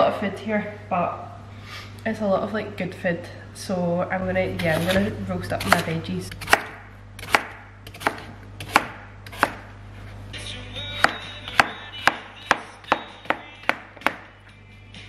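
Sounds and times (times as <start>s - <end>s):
knife chopping on plastic board: 5.6s - 9.7s, 11.0s - 14.3s
faint background music: 10.3s - 15.0s.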